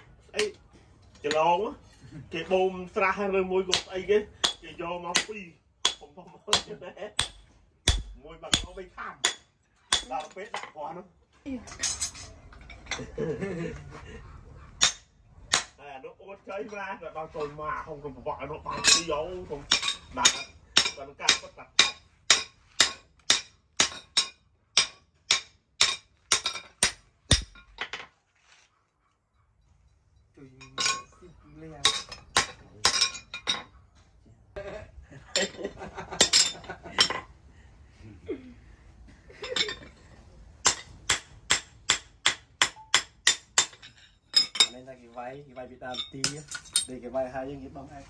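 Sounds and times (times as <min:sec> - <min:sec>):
hammer striking chisel on metal: 0:03.6 - 0:10.7, 0:14.8 - 0:15.8, 0:19.7 - 0:27.8, 0:31.8 - 0:33.7, 0:40.6 - 0:44.8.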